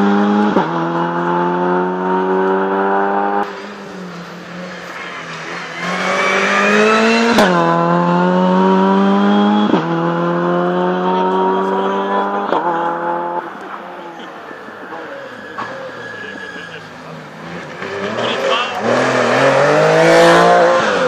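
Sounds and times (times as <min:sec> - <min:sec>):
rally car engine accelerating: 0:00.0 - 0:21.0.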